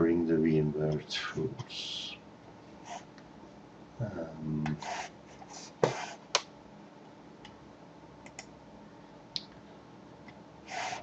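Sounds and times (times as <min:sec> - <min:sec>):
low hummed voice: 0:00.0 - 0:02.2, 0:04.0 - 0:04.9.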